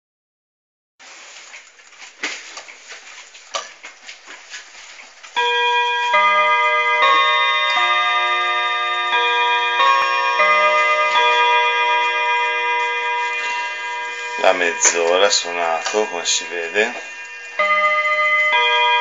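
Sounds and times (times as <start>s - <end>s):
clock chime melody: 5.4s - 19.0s.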